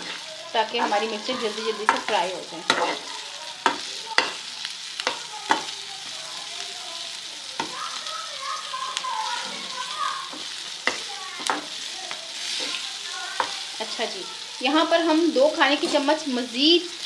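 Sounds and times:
spoon clacking against pan: 0.0 - 6.1, 7.5 - 8.0, 9.3 - 14.0
chillies sizzling in oil: 0.0 - 17.0.

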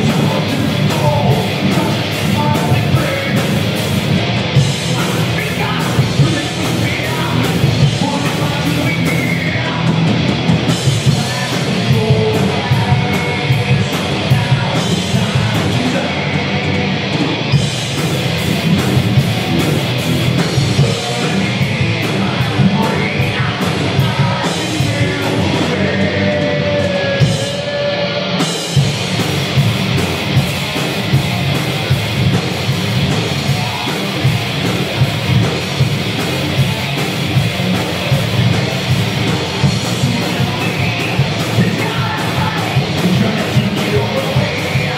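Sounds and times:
bass guitar: 0.0 - 44.9
distorted electric guitars: 0.0 - 44.9
drum kit: 0.0 - 44.9
vocals: 0.0 - 44.9.

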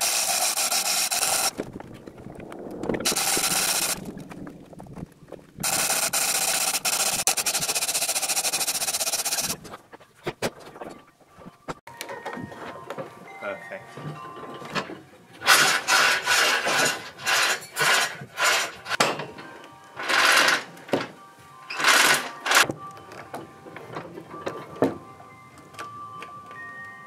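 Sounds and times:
rasping strokes on wood: 0.0 - 1.5, 3.1 - 4.0, 5.6 - 9.6, 15.5 - 19.0
background music: 10.8 - 15.9, 19.0 - 27.0.

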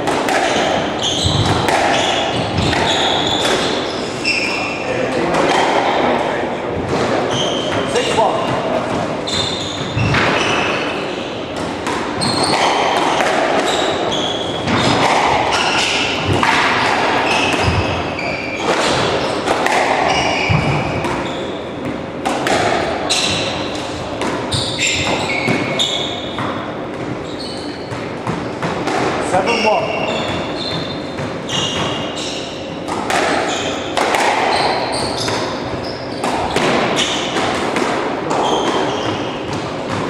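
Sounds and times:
squash ball cracking off rackets: 0.0 - 3.8, 21.8 - 25.8, 32.8 - 40.0
shoes squeaking on floorboards: 0.5 - 5.0, 6.9 - 22.0, 23.0 - 23.9, 24.5 - 37.4, 38.2 - 40.0.

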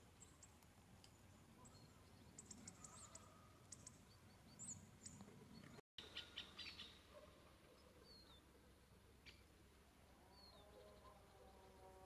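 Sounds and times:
small birds chirping: 0.1 - 8.5.

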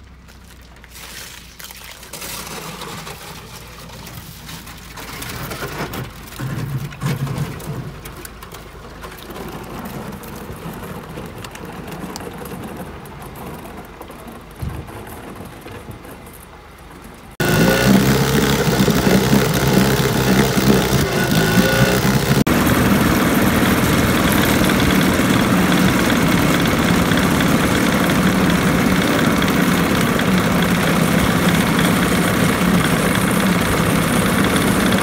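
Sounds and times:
water splashing around boat hull: 0.2 - 11.3
crackles and scrapes: 0.4 - 22.5.

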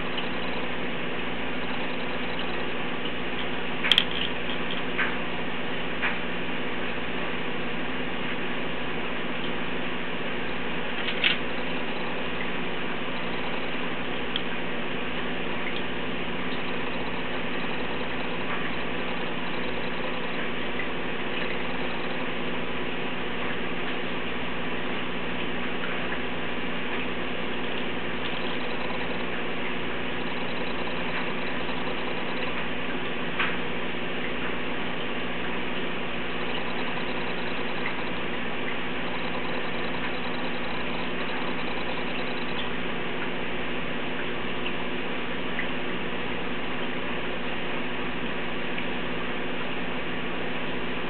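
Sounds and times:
aquarium equipment humming: 0.0 - 51.0.

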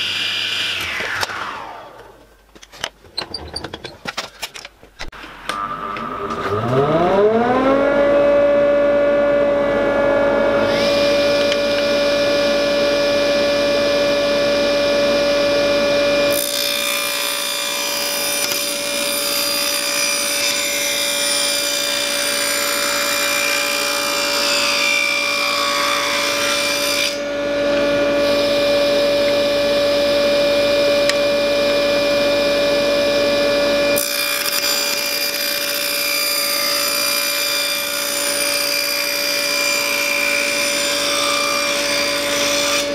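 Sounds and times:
saw blade cutting wood: 0.0 - 2.2, 16.3 - 29.4, 34.0 - 42.9
table saw motor running: 0.0 - 2.2, 5.3 - 42.9.

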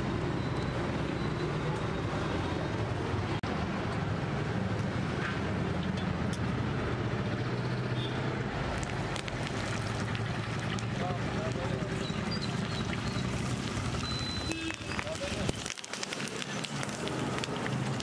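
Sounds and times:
faint crackles: 8.6 - 18.0.

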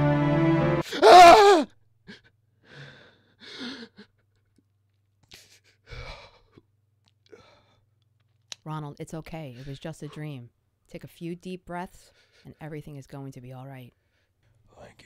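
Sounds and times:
man crying out: 0.8 - 1.7
man breathing hard: 2.1 - 4.1, 5.3 - 6.6, 7.3 - 7.8.

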